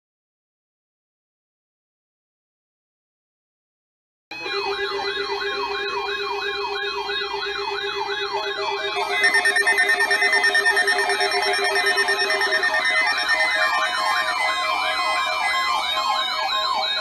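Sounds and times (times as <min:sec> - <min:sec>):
steady higher alarm tones: 0:04.3 - 0:17.0
warbling siren tone: 0:04.4 - 0:17.0
steady lower tone: 0:08.8 - 0:14.9.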